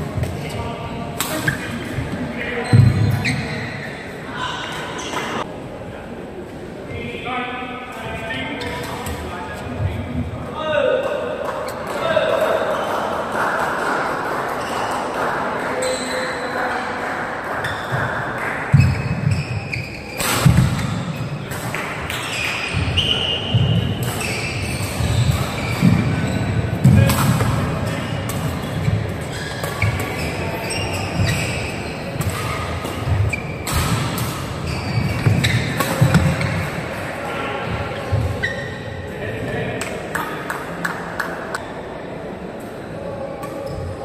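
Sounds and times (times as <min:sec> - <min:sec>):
crowd chatter: 0:00.0 - 0:44.0
racket striking shuttlecock: 0:32.2 - 0:36.8.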